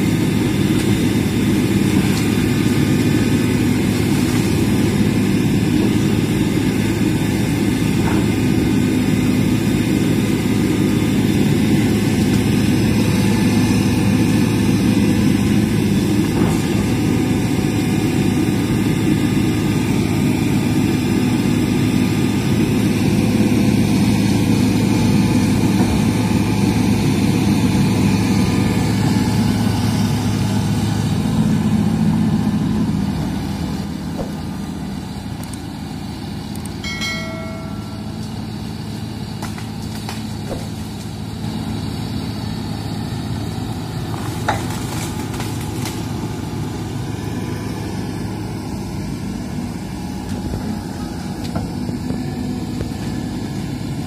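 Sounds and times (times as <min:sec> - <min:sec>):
excavator diesel engine running: 0:00.0 - 0:54.0
short ringing tone: 0:36.8 - 0:38.7.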